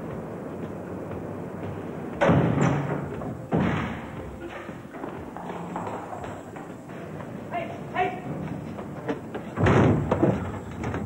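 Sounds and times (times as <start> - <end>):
heavy bangs on lift door: 9.6 - 10.5.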